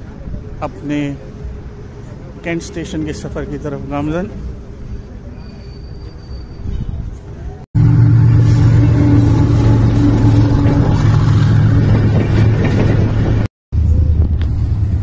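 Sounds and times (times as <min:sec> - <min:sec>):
passing train rumble: 0:06.1 - 0:15.0.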